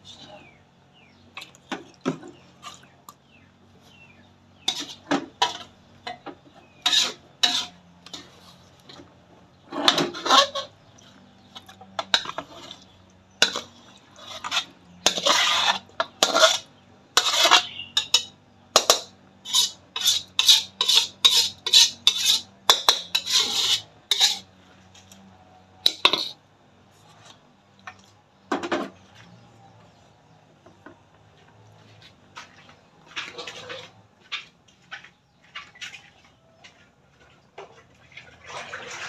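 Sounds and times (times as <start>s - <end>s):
metal cookware clanking and scraping: 4.6s - 25.1s, 25.8s - 26.4s.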